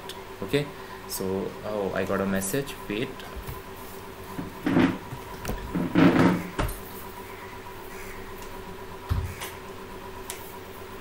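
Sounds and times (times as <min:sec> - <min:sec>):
faint electrical hum: 0:00.0 - 0:11.0
handling bumps and rustles: 0:03.3 - 0:03.7, 0:04.3 - 0:07.0.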